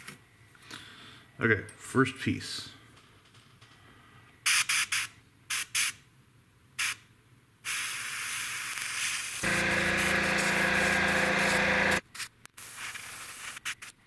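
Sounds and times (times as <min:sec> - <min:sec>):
airbrush spraying: 0:07.7 - 0:13.9
air compressor humming: 0:09.4 - 0:12.0.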